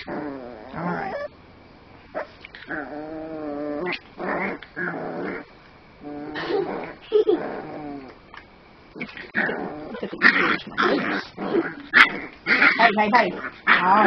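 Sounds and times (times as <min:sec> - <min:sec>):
puppy snarling growls: 0:00.0 - 0:01.3, 0:02.2 - 0:08.2, 0:08.9 - 0:14.0
puppy whining: 0:00.0 - 0:01.3.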